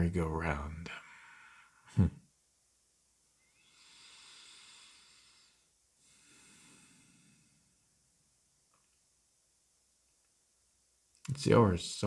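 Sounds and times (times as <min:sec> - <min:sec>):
man breathing: 0:00.9 - 0:01.9, 0:03.5 - 0:07.8.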